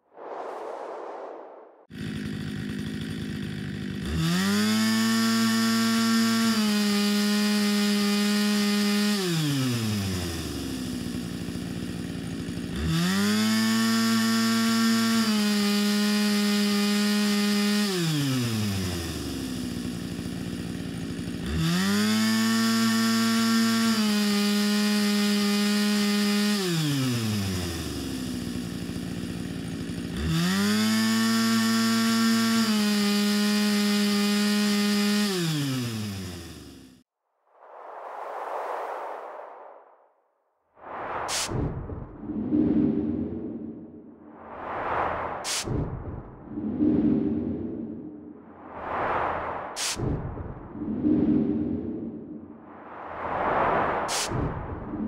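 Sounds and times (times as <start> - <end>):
chainsaw revving: 1.9 - 37.0, 46.5 - 48.5.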